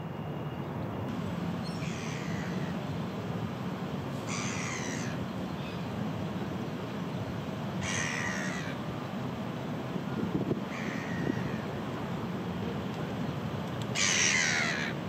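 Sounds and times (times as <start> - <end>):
gull calling: 1.6 - 2.8, 4.3 - 5.8, 7.8 - 8.8, 14.0 - 15.0.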